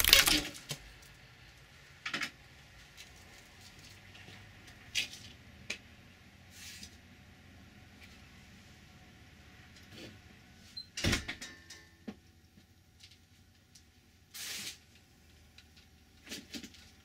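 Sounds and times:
short hiss: 14.3s - 14.8s.

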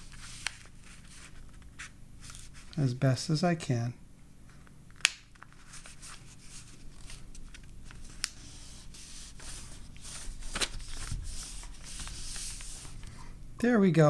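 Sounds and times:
paper rustling and rubbing: 0.0s - 2.9s, 5.4s - 13.1s.

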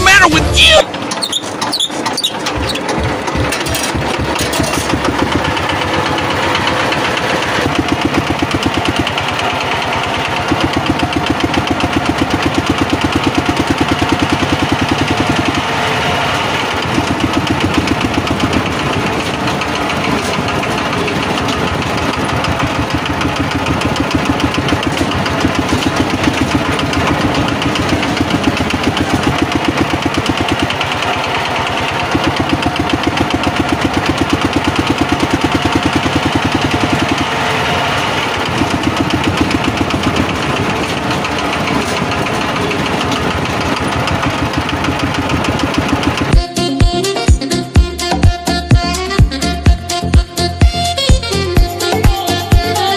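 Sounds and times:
tractor engine chugging: 0.0s - 52.9s.

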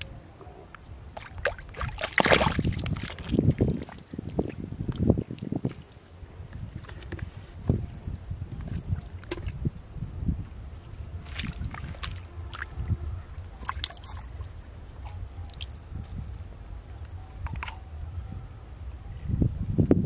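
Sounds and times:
small clicks and drips: 0.0s - 7.3s, 10.8s - 16.4s
muddy water sloshing: 0.0s - 9.6s, 10.6s - 17.9s
wet mud squelching: 0.7s - 9.6s, 10.8s - 16.4s
hand splashing in muddy water: 1.2s - 4.4s.

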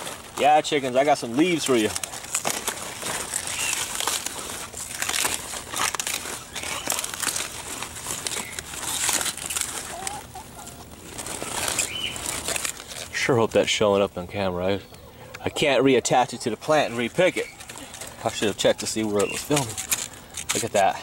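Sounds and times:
leaves rustling and crackling: 0.0s - 21.0s
chicken clucking: 9.7s - 12.4s, 13.8s - 20.0s.

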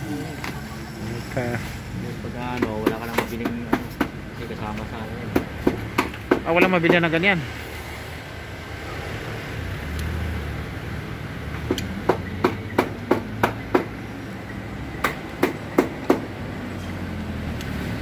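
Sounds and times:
sharp taps on hard surface: 2.5s - 4.2s, 4.8s - 7.0s.

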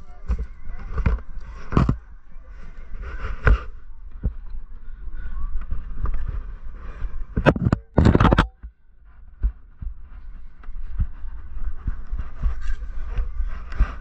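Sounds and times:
body scraping against rock: 0.8s - 2.0s, 7.3s - 8.5s.

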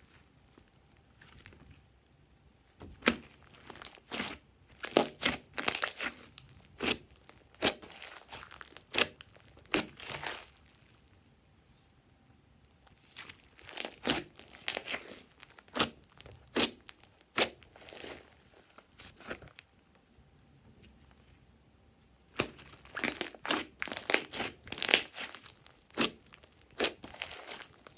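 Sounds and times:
slime popping and crackling: 3.0s - 11.0s, 12.9s - 19.6s, 22.3s - 27.9s.

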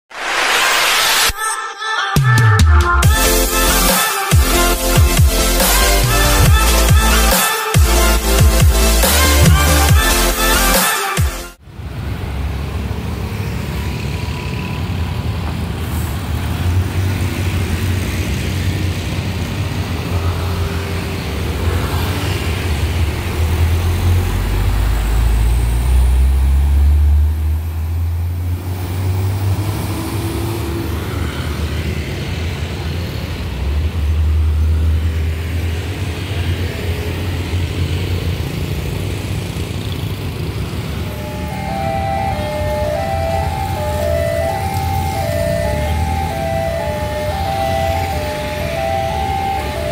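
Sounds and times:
truck diesel engine: 3.0s - 49.9s
motorcycles and cars passing: 11.6s - 49.9s.

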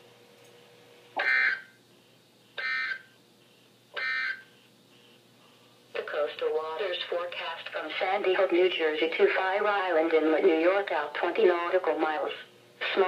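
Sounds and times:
buzzing data bursts from radio: 4.0s - 4.6s.

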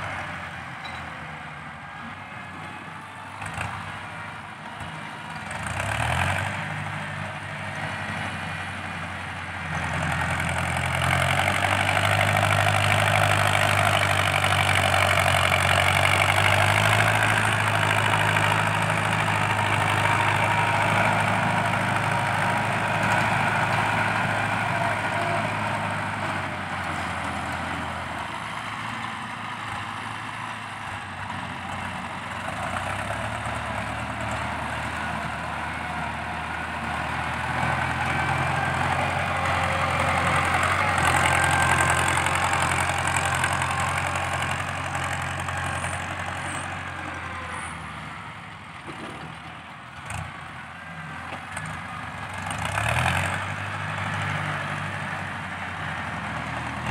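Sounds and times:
tractor diesel engine under load: 0.0s - 56.9s.

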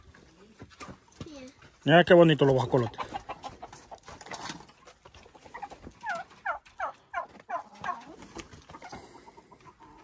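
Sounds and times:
turkey calling: 5.3s - 10.0s.

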